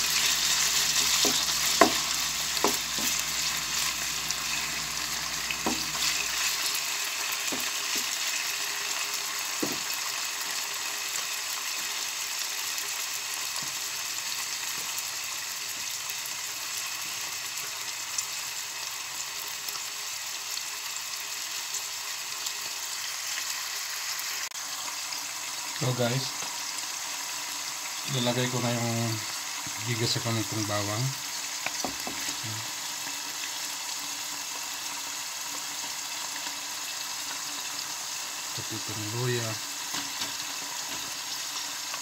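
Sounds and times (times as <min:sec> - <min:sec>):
meat sizzling in oil: 0:00.0 - 0:42.0
wooden spatula knocking on pan: 0:01.0 - 0:03.9, 0:05.6 - 0:06.2, 0:07.4 - 0:08.2, 0:09.6 - 0:09.9, 0:31.7 - 0:32.4.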